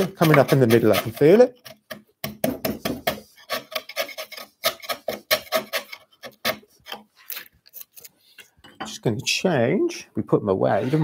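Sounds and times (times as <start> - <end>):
wood chisel scraping cuts: 0.0 - 8.1, 10.7 - 11.0.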